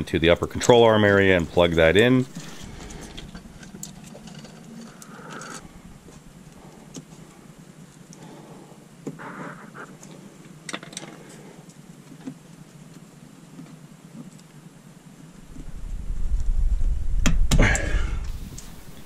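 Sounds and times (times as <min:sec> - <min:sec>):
scraping: 0:01.8 - 0:06.3.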